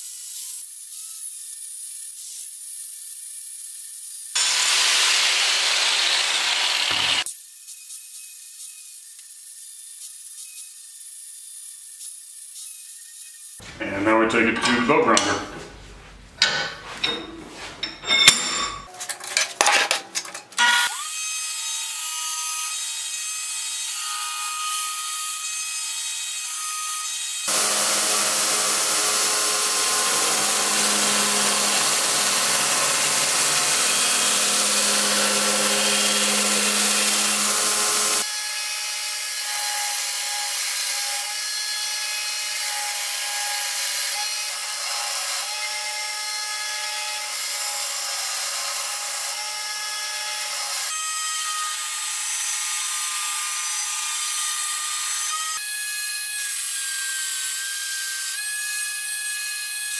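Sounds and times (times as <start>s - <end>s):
belt grinder grinding steel: 4.0s - 7.3s, 23.8s - 52.2s.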